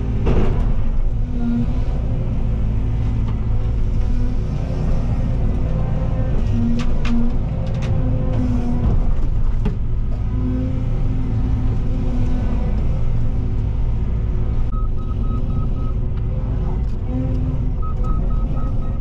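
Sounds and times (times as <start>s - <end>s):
excavator diesel engine running: 0.0s - 19.0s
hydraulics working: 0.0s - 19.0s
rapid alarm beeps: 14.7s - 16.0s, 17.8s - 19.0s.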